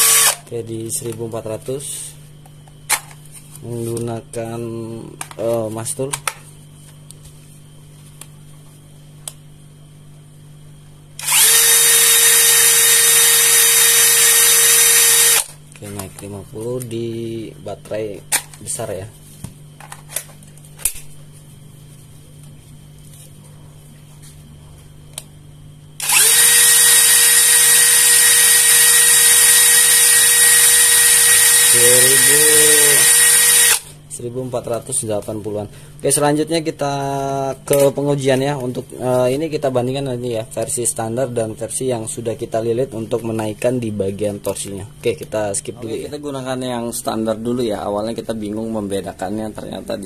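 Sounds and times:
cordless drill whining: 0:00.0 - 0:00.4, 0:11.2 - 0:15.5, 0:26.0 - 0:33.9.

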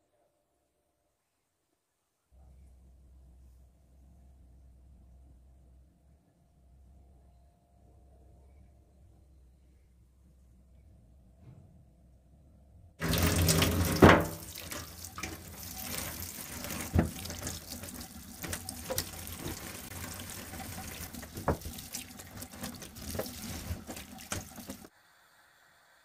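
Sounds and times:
tap water running into sink: 0:13.0 - 0:24.9.

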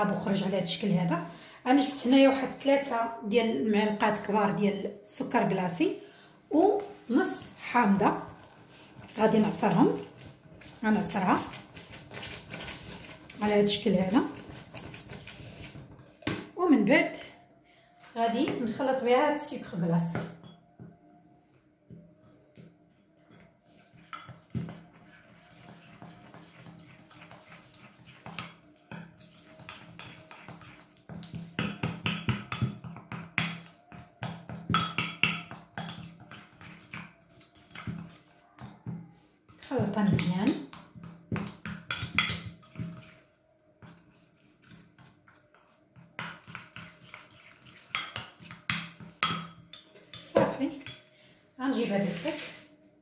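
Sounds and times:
spoon scraping in glass bowl: 0:08.2 - 0:16.1, 0:20.3 - 0:20.6, 0:23.3 - 0:38.4, 0:39.5 - 0:51.1
metal spoon clinking against glass bowl: 0:20.4 - 0:20.6, 0:29.2 - 0:32.7, 0:33.4 - 0:36.6, 0:41.3 - 0:43.3, 0:45.5 - 0:51.1
spoon clinking against glass: 0:49.2 - 0:51.1.

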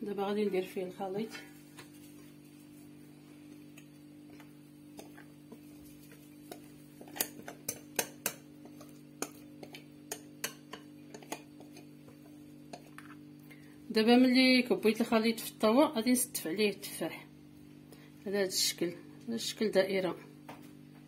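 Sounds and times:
steady low hum: 0:00.0 - 0:21.0
utensil scraping mixing bowl: 0:04.4 - 0:13.2.

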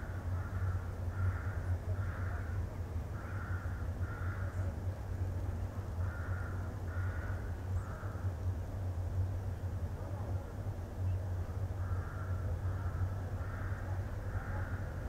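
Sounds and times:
steady low rumble: 0:00.0 - 0:15.0
crows cawing: 0:00.3 - 0:04.8, 0:06.0 - 0:08.3, 0:11.8 - 0:15.0.

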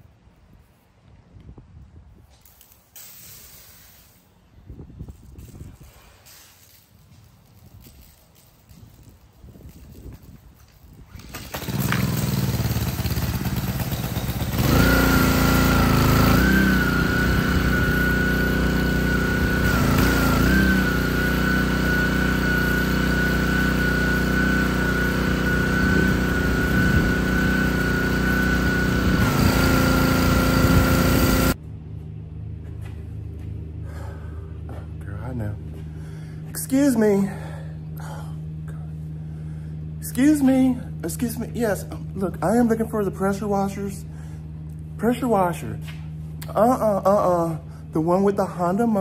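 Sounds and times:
pressure washer engine running: 0:11.2 - 0:31.6.

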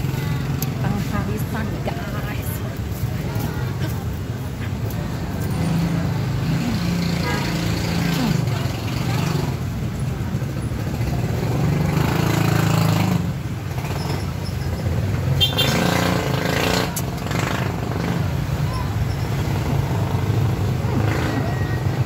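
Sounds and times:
faint background voices: 0:00.0 - 0:11.0
motorcycle engines passing: 0:00.0 - 0:22.0.

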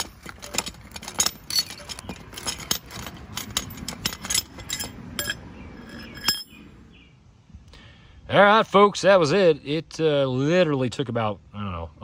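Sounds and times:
light metallic clinks: 0:00.0 - 0:06.6.

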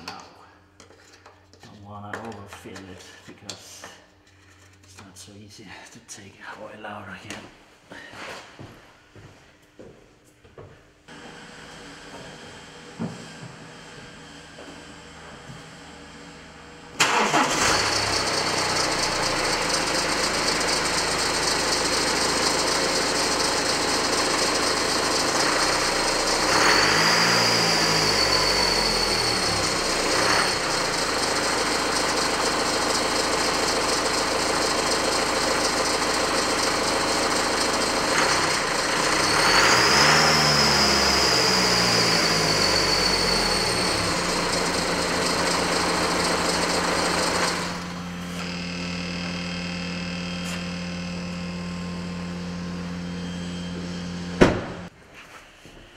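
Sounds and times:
diesel engine idling and revving: 0:11.1 - 0:54.9.

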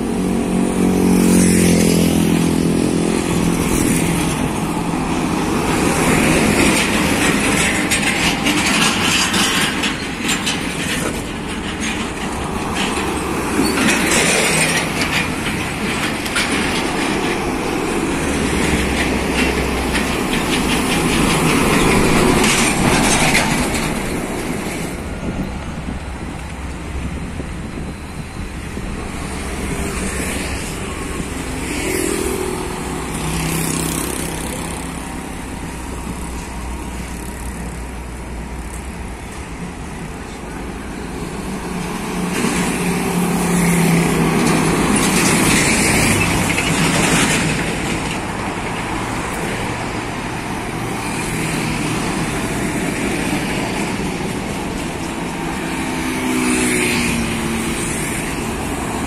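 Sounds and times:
heavy trucks passing: 0:00.0 - 0:59.0
low rumble of traffic: 0:00.0 - 0:59.0.

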